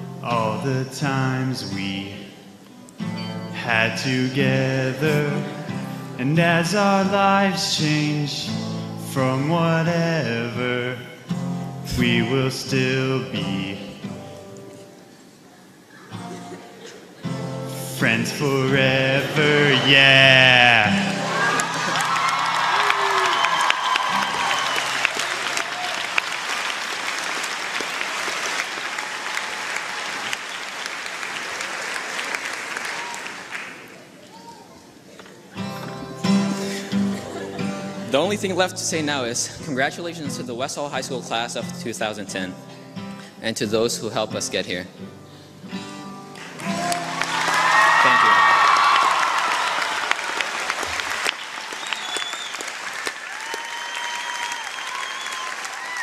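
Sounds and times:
audience applauding: 18.7 - 34.2, 46.3 - 56.0.

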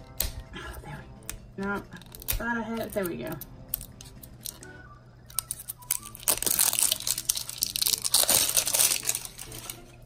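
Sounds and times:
plastic packaging crinkling: 5.3 - 10.0.

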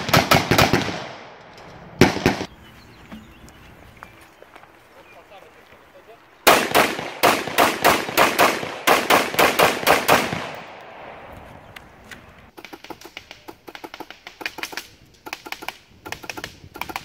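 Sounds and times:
rapid gunshots: 0.0 - 1.3, 2.0 - 2.5, 6.5 - 10.7, 12.5 - 17.0
airsoft rifle clicking: 11.8 - 17.0.

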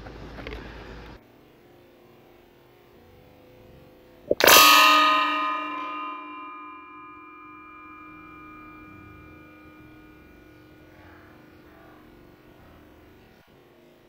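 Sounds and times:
metal target stand ringing: 4.3 - 13.0.

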